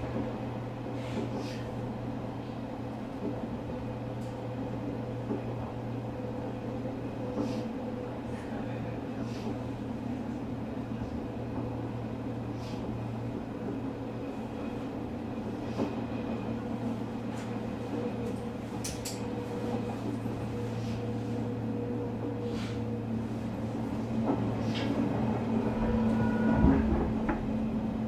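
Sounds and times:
electric train running: 23.2s - 28.0s
mid-pitched motor tone: 25.6s - 27.5s.

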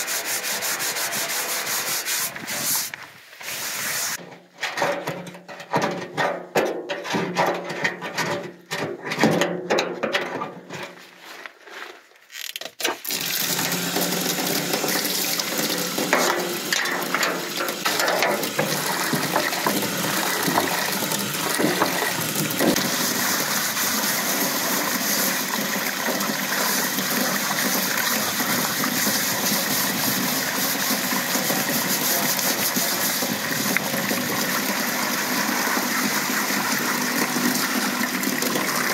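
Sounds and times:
hose spraying water into tub: 0.0s - 4.2s, 12.8s - 38.9s
scourer scrubbing bathtub: 0.0s - 4.2s, 13.1s - 38.9s.

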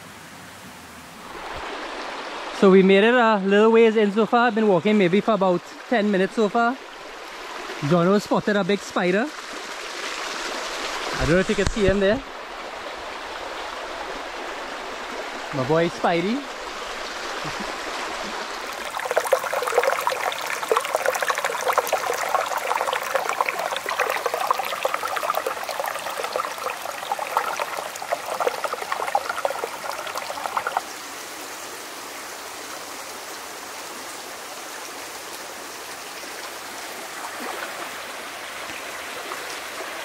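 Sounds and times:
stream babbling over stones: 1.1s - 40.0s
close water burbling: 1.2s - 3.0s, 5.0s - 31.2s, 36.3s - 40.0s.

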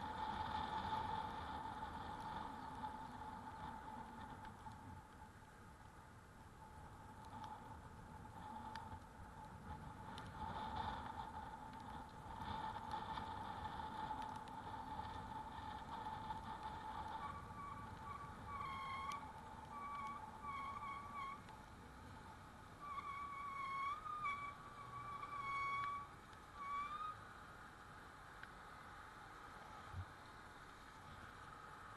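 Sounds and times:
electric bike high whine: 0.0s - 5.2s, 6.6s - 27.4s
low road rumble: 0.0s - 31.9s.

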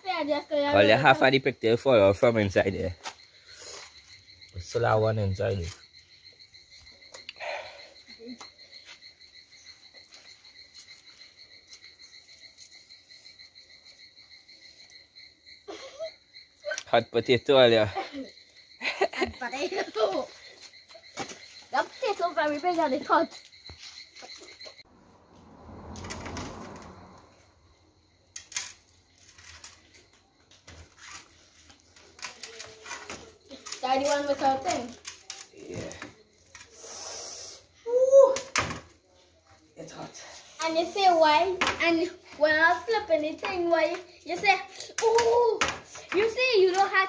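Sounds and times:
insect trilling: 0.0s - 38.8s, 39.8s - 47.0s
low rushing sound: 24.9s - 27.8s.

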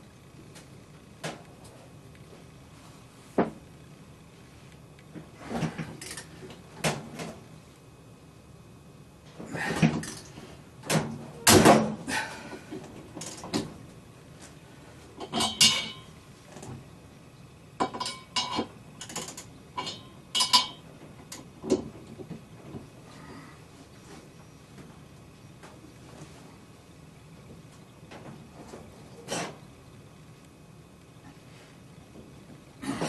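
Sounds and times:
parts and tools clattering: 15.2s - 16.1s, 17.8s - 20.8s.

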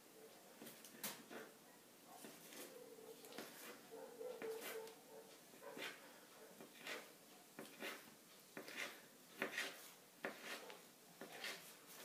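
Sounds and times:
knife slicing through dough: 4.4s - 4.9s, 5.8s - 6.0s, 6.6s - 12.0s.

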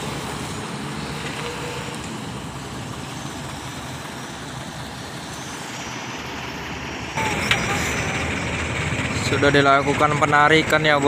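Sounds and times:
truck diesel engine running: 0.0s - 11.0s.

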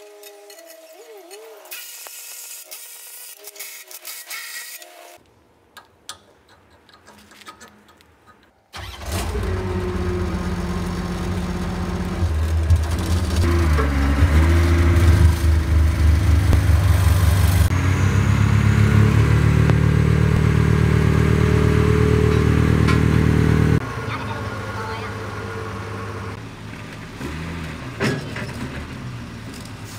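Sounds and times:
road roller diesel engine: 7.0s - 29.9s.

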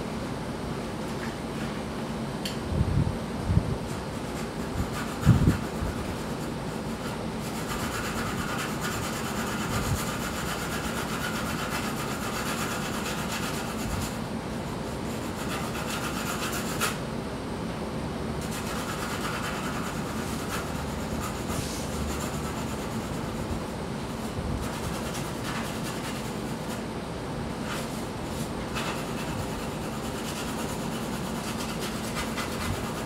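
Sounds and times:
pencil shading on paper: 18.4s - 23.4s, 28.7s - 33.0s.

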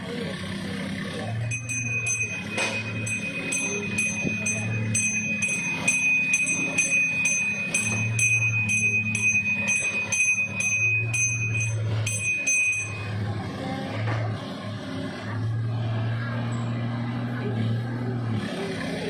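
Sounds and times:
small hand bell ringing: 1.4s - 13.4s.

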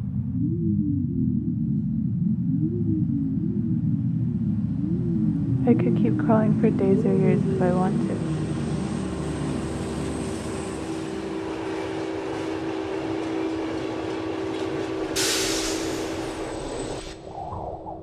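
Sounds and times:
subway train rumbling: 0.0s - 18.0s
loud hiss: 15.2s - 16.5s.

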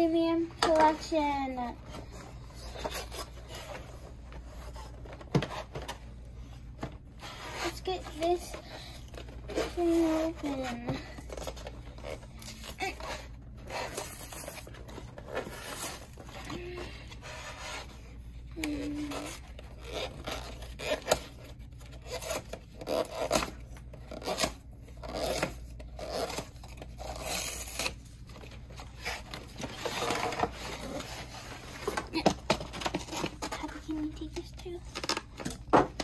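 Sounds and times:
cardboard and paper rustling: 0.1s - 36.0s.

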